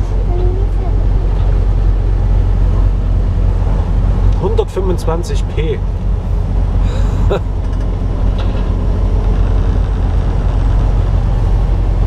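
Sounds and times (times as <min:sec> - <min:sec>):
truck engine and road rumble: 0:00.0 - 0:12.0.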